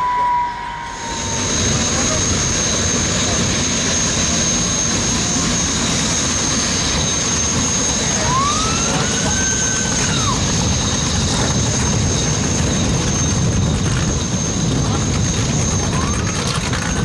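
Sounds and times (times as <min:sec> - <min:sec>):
brief rising and falling tone: 0:00.0 - 0:02.5
boat engines idling with turbine whine: 0:00.0 - 0:17.0.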